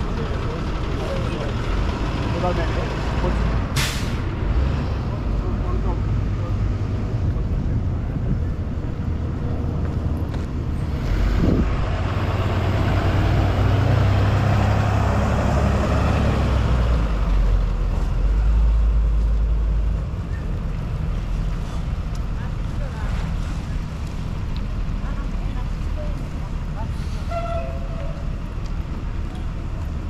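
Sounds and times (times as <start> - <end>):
road noise: 0.0 - 30.0
vehicle engine rumble: 0.0 - 30.0.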